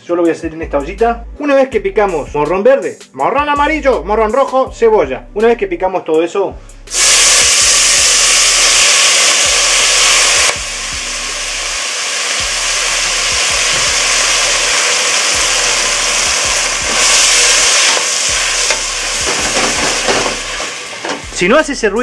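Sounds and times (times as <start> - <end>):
vegetables sizzling in hot oil: 6.9 - 21.4.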